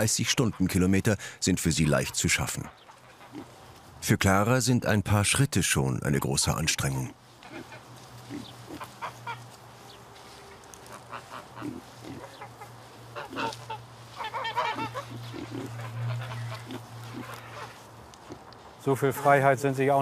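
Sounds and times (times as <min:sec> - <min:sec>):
honking animal calls: 0:01.6 - 0:03.7, 0:07.4 - 0:19.6.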